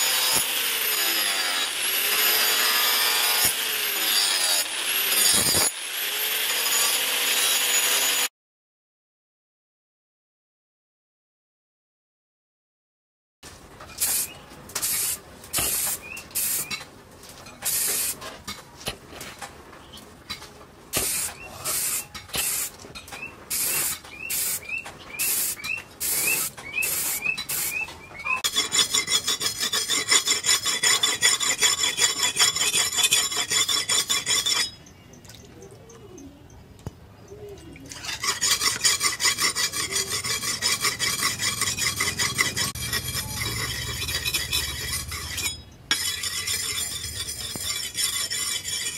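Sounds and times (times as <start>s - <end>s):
blade scraping on whetstone: 28.4s - 34.8s, 37.9s - 48.9s.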